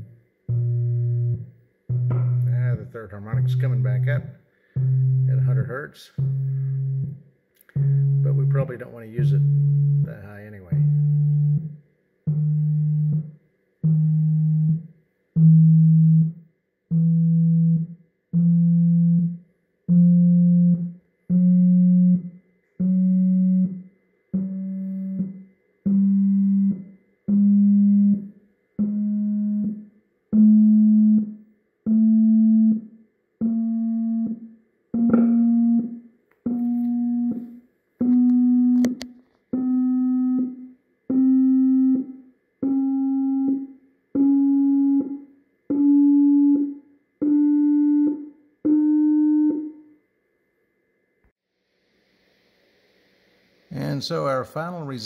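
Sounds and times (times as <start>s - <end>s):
stepped sine tones rising: 0.0s - 23.8s, 39.6s - 49.8s.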